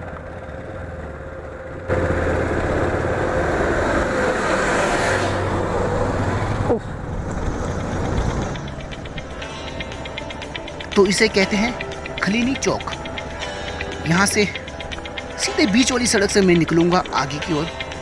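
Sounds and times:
bus passing with rushing whine: 0:00.0 - 0:18.0
scooter engine humming: 0:00.0 - 0:18.0.

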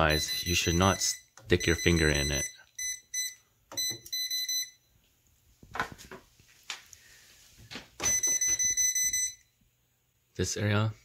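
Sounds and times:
voltage tester beeping: 0:00.0 - 0:04.8, 0:08.0 - 0:09.5.

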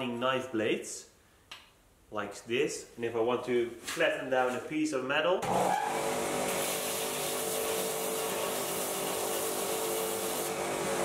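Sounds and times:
grinder motor hum: 0:05.4 - 0:11.0.

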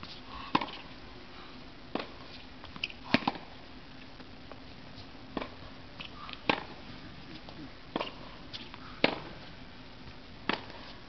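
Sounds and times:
tennis ball struck by rackets: 0:00.5 - 0:00.8, 0:02.8 - 0:03.5, 0:05.3 - 0:06.8, 0:07.9 - 0:09.4, 0:10.4 - 0:10.9.

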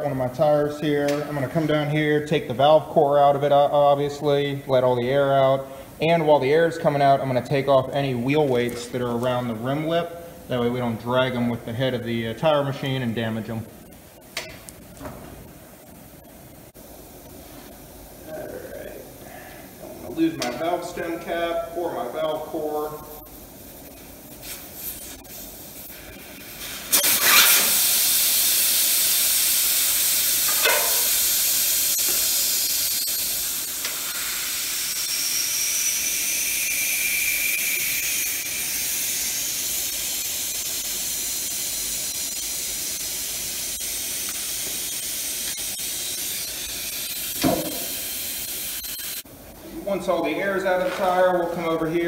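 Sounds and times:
air hissing out of tire: 0:23.4 - 0:49.2.

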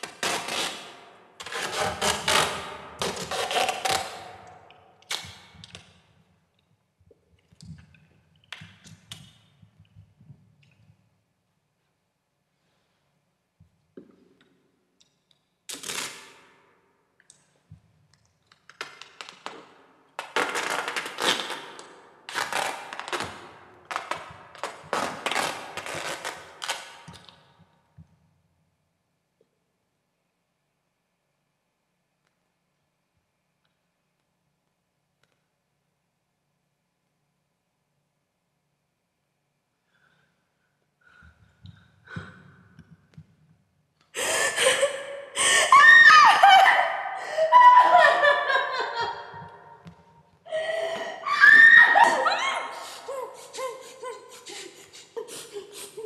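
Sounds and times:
tape ripping off a roll: 0:00.0 - 0:06.0, 0:15.7 - 0:16.6, 0:18.5 - 0:27.5
woman breathing and gasping: 0:44.1 - 0:45.8, 0:47.1 - 0:47.6, 0:50.5 - 0:51.4, 0:52.3 - 0:56.0
woman gasping cry: 0:44.2 - 0:49.3, 0:50.5 - 0:56.0.

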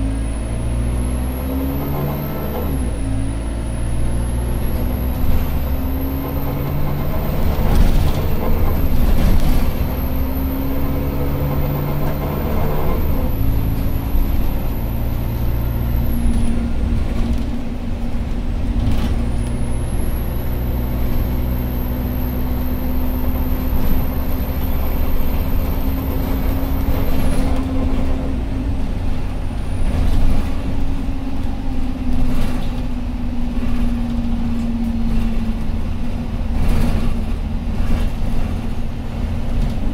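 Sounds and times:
bus engine drone: 0:00.0 - 0:39.9.

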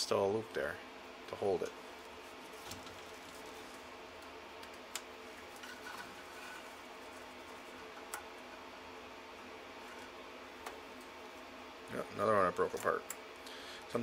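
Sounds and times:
steady low hum: 0:00.0 - 0:14.0
wire ticking and rustling: 0:02.0 - 0:08.7.

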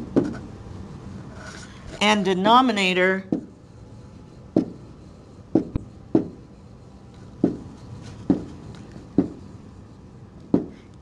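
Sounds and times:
pen tapping on whiteboard: 0:04.5 - 0:04.8, 0:05.5 - 0:06.4, 0:07.4 - 0:08.6, 0:09.2 - 0:09.4, 0:10.4 - 0:10.8.

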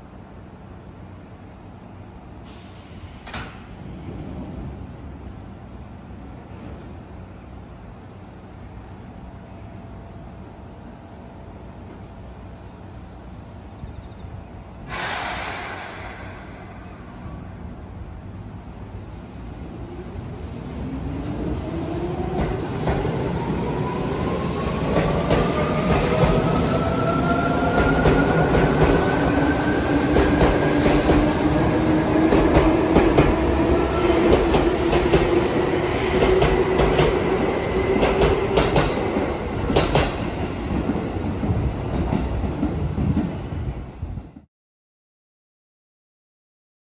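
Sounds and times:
train wheels clacking: 0:32.2 - 0:41.0.

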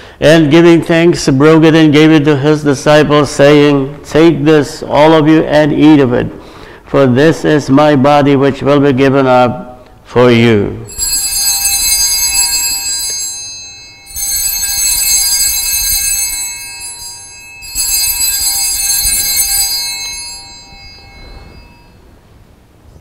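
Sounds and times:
jangling small bells: 0:10.9 - 0:22.2.

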